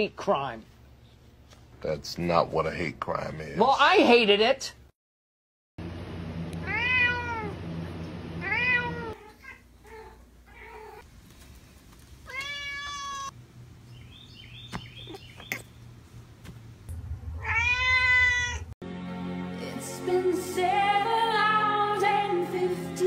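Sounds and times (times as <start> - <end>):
cat meowing: 6.6 - 7.6, 8.4 - 11.0, 12.2 - 13.4, 17.4 - 18.7.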